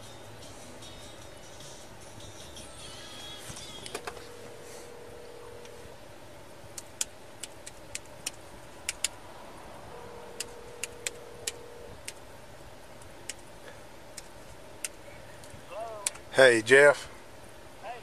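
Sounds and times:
faint steady tone: 0.0s - 7.3s, 8.1s - 18.0s
idling car hum: 0.0s - 18.0s
keyboard keys clicking: 10.4s - 12.2s.

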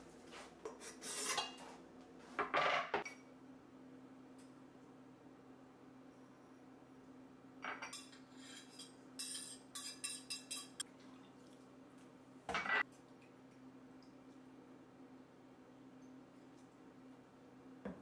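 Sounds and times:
faint steady hum: 3.1s - 18.0s
dishes clinking and scraping: 7.6s - 10.9s, 12.5s - 12.9s.

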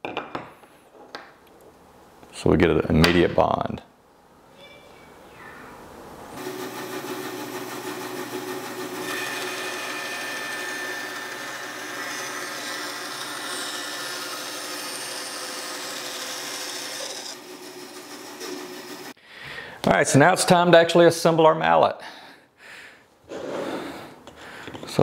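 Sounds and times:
bandsaw running: 6.4s - 19.2s.

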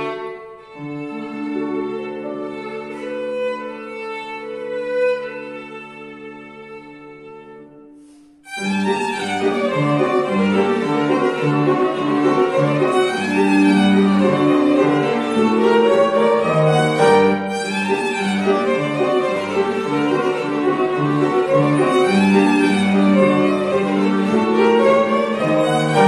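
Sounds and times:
grand piano: 0.0s - 26.0s
violin: 0.0s - 26.0s.

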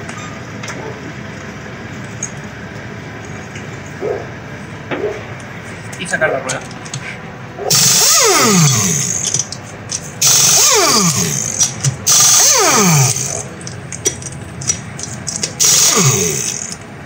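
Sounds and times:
tool spinning down whine: 7.7s - 9.6s, 10.2s - 13.8s, 15.3s - 16.8s
impact wrench hammering: 7.7s - 16.8s.

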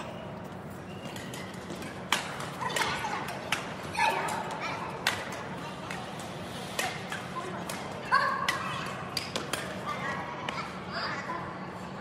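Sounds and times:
rackets striking shuttlecock: 1.0s - 9.8s.

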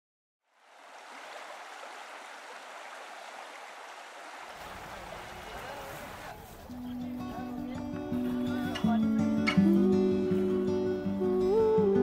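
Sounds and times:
water flowing: 0.4s - 6.7s.

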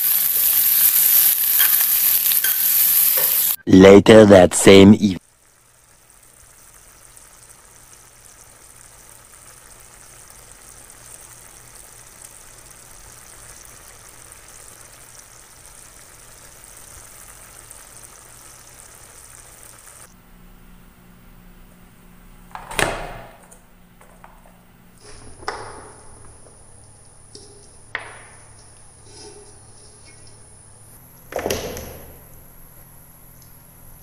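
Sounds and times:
food bubbling in a pan: 5.2s - 20.1s.

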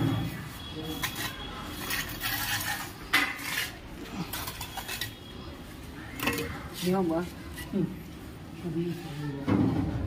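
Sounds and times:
hard objects clinking and knocking: 1.0s - 5.3s.

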